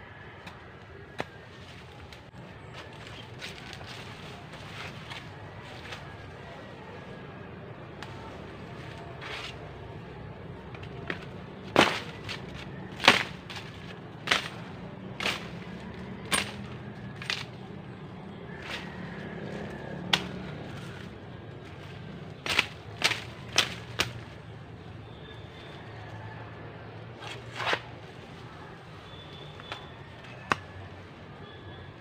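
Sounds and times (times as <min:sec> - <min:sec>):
digging tool striking soil: 0:11.1 - 0:15.6.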